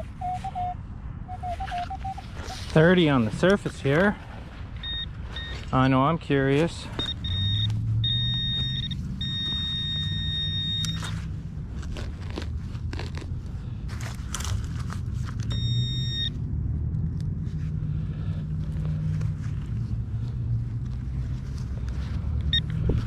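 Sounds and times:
pinpointer beeping: 4.8 - 5.6, 7.0 - 11.0
digging through soil and leaves: 10.8 - 15.6.

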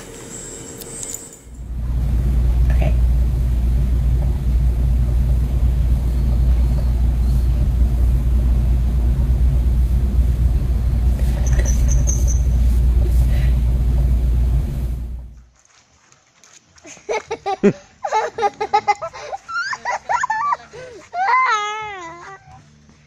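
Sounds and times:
high squeak: 0.0 - 1.6, 11.3 - 12.7
machine rumbling: 0.0 - 15.4.

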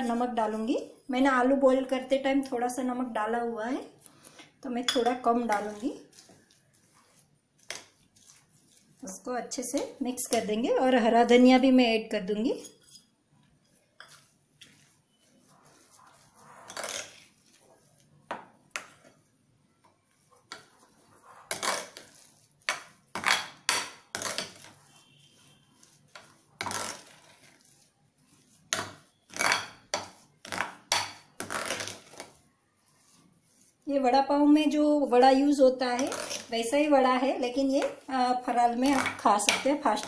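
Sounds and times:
mash squelching: 3.9 - 11.4, 12.6 - 19.4, 20.0 - 40.0
spoon scraping a glass bowl: 4.2 - 10.6, 12.5 - 18.0, 20.2 - 33.8, 35.4 - 40.0.

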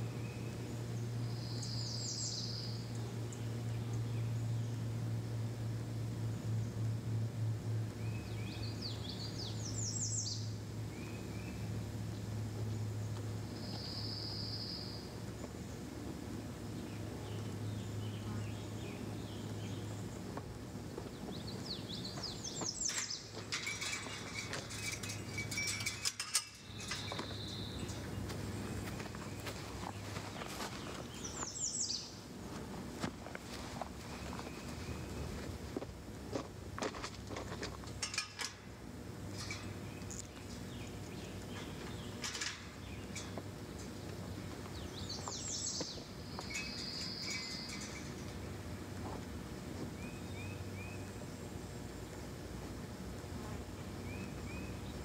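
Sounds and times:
birds chirping: 0.0 - 5.0, 7.9 - 32.3, 33.7 - 35.6, 37.3 - 55.0
steady low hum: 0.0 - 55.0
light metallic clinks: 22.7 - 28.1, 38.0 - 38.7, 39.3 - 40.3, 44.8 - 48.5.

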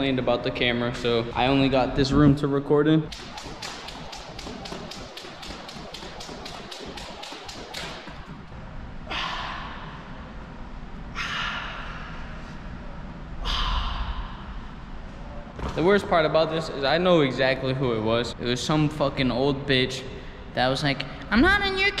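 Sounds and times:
fast light ticks: 3.1 - 8.5
man breathing out hard: 13.4 - 14.5.

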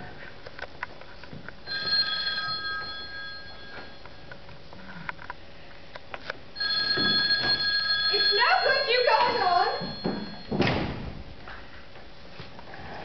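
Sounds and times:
telephone ring sound effect: 1.7 - 4.0, 6.6 - 10.6.

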